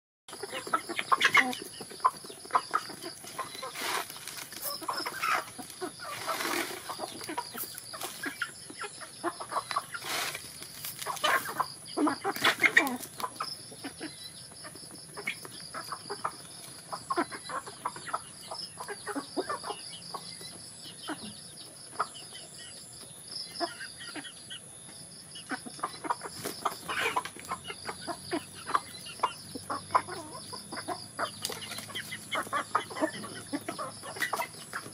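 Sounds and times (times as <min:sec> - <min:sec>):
hens and roosters clucking: 0:00.3 - 0:34.9.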